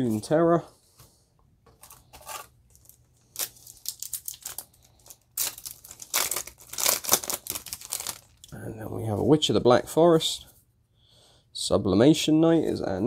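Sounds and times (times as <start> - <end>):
foil wrapper crinkling: 1.8 - 8.5
foil wrapper tearing: 1.8 - 8.5.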